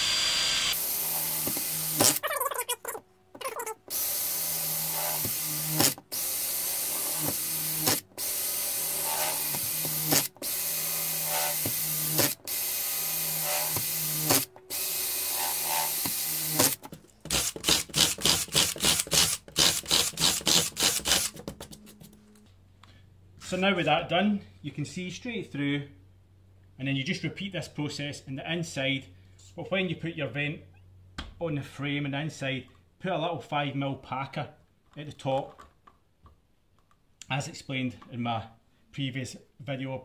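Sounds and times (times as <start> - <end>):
power drill boring: 0.0 - 2.7, 3.8 - 21.3.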